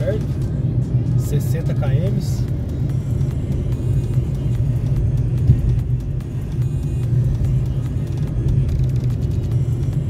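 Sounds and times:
car engine and tyre rumble: 0.0s - 10.0s.

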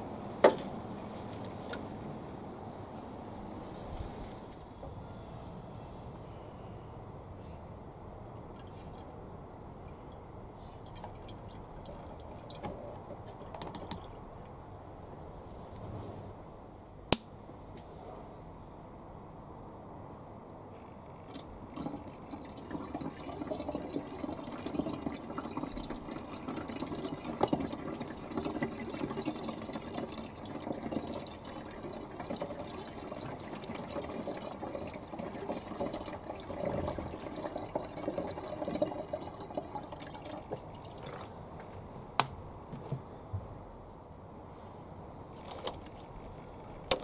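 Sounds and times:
water pouring from plastic bottle: 21.3s - 41.4s.

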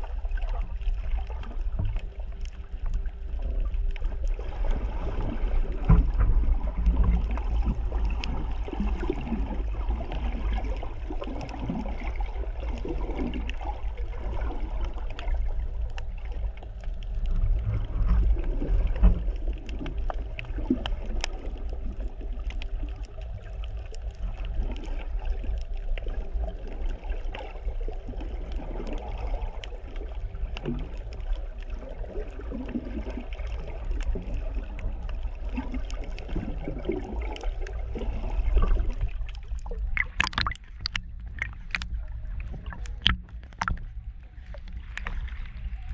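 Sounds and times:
muffled underwater rumble: 0.0s - 45.9s
faint clicks: 38.5s - 45.5s.

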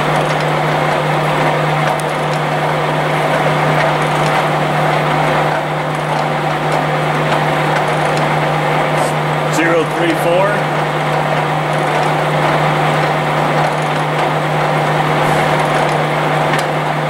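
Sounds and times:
surface grinder running: 0.0s - 17.0s.

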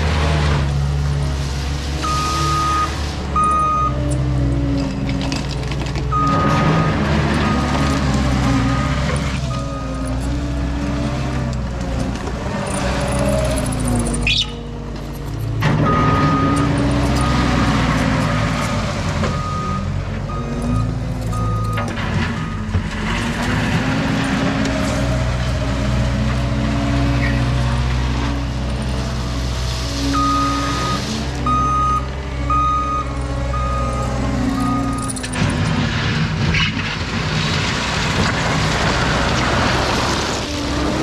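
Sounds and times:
diesel engine revving: 0.0s - 41.0s
backup alarm beeping: 2.0s - 4.0s, 30.2s - 35.2s.

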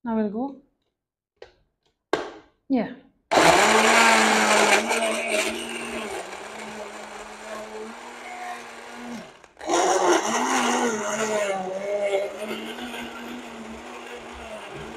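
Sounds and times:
blender motor running: 3.3s - 14.9s.

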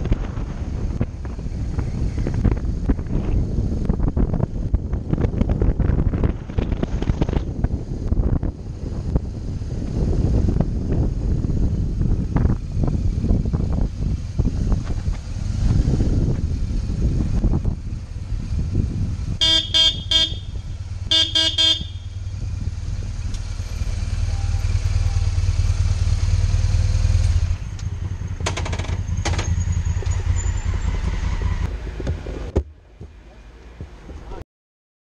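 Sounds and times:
motorcycle engine running: 0.0s - 34.0s
motorcycle horn beeps: 19.4s - 22.4s, 24.2s - 25.4s.

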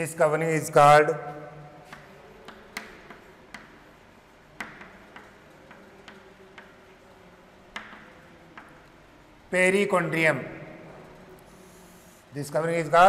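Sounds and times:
chalk tapping on chalkboard: 1.8s - 9.0s, 11.5s - 12.2s.

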